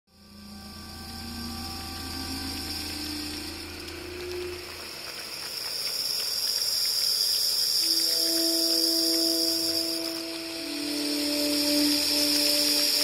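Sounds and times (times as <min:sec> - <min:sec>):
ambient synthesizer held tones: 0:00.1 - 0:06.3, 0:07.8 - 0:13.0
low hum: 0:00.1 - 0:06.3
steady hiss: 0:00.1 - 0:13.0.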